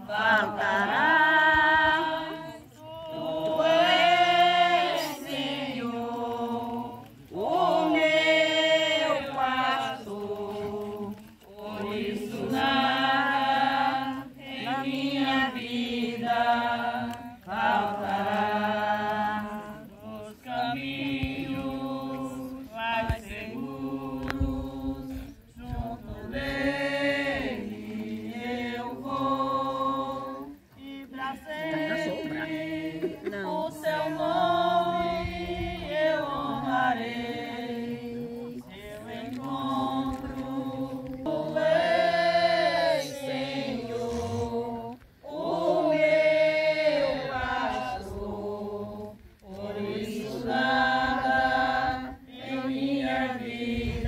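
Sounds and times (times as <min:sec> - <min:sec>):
group of people singing a hymn: 0:00.0 - 0:54.0.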